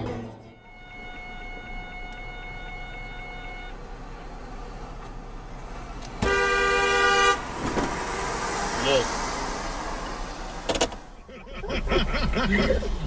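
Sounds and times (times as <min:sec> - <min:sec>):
car horn blast: 0:00.4 - 0:03.9, 0:06.2 - 0:07.5
car idling hum: 0:00.6 - 0:13.0.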